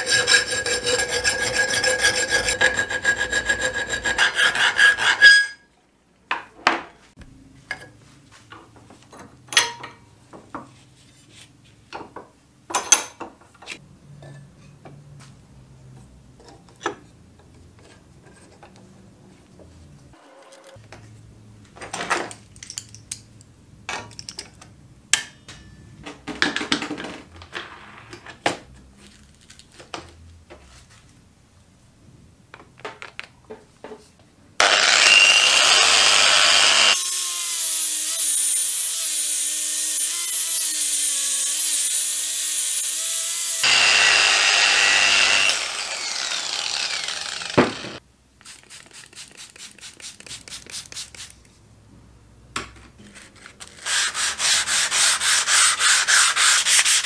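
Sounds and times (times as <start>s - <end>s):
power sander grinding metal: 34.6s - 48.0s.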